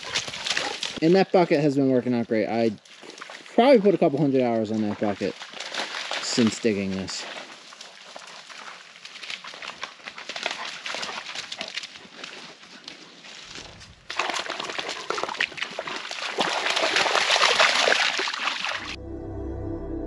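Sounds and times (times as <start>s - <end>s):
dog splashing in water: 0.0s - 1.0s, 2.9s - 19.0s
soft ambient music: 19.0s - 20.0s.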